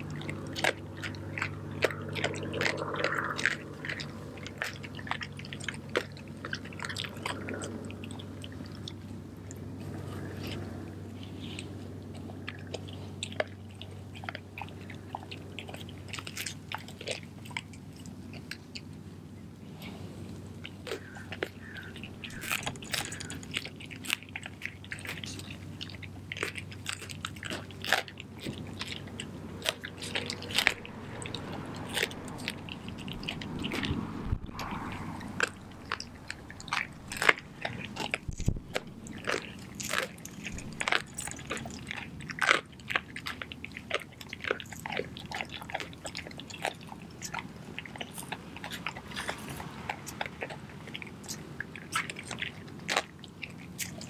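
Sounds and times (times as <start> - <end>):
dog wet chewing: 0.0 - 54.0
bones snapping and cracking: 20.6 - 54.0.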